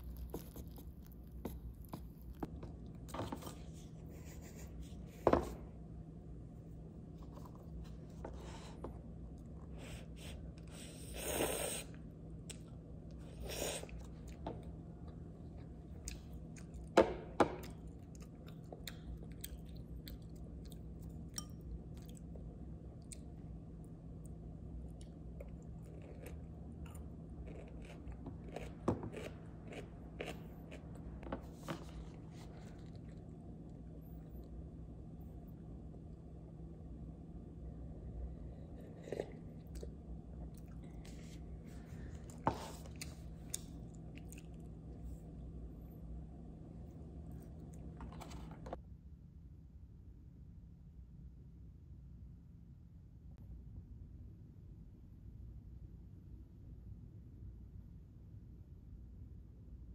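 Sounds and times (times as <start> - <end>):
chewing and crunching: 0.0 - 4.0, 12.4 - 34.6, 38.5 - 45.4
low room hum: 0.0 - 59.9.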